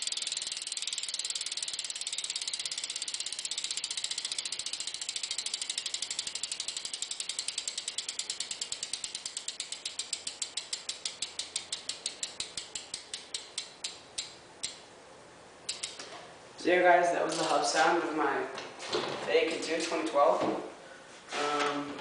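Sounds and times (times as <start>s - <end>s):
bike hub ratcheting clicks: 0.0s - 14.8s, 15.7s - 16.1s.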